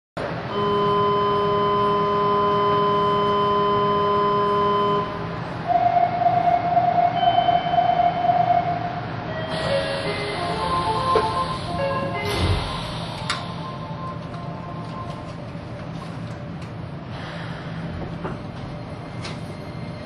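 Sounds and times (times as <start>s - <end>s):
pulsing wavering warning tone: 0.5s - 15.3s.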